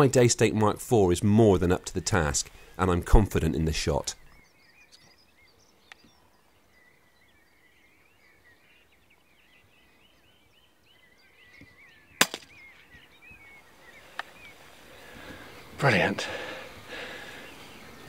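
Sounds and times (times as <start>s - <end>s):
songbirds singing: 0.0s - 18.0s
faint click: 5.9s - 6.1s, 14.1s - 14.3s
air rifle shot: 12.2s - 12.6s.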